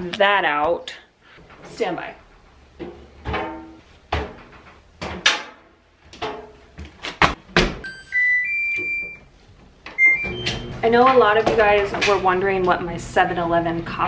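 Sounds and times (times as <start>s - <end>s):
electronic beeps: 7.8s - 9.3s, 10.0s - 10.7s.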